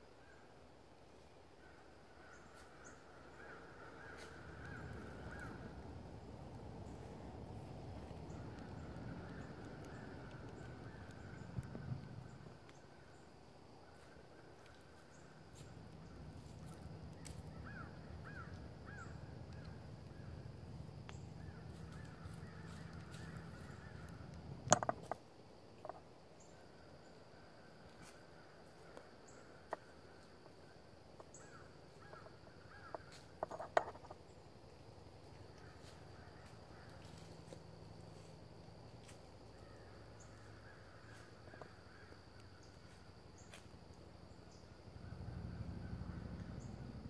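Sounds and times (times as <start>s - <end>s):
faint woodland ambience: 0.0s - 47.0s
high insect drone: 1.6s - 47.0s
soft ticks: 8.0s - 12.8s.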